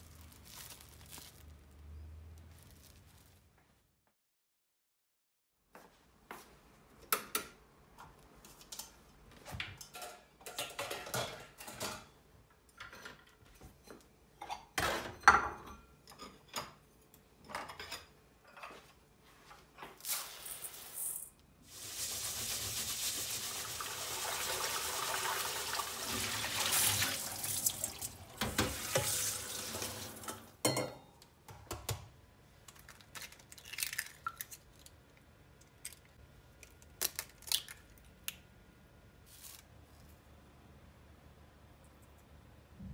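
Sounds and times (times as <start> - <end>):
kitchenware clinking and knocking: 9.7 - 12.1, 14.4 - 16.8, 30.3 - 32.0
tap water running into metal bowl: 21.8 - 30.5.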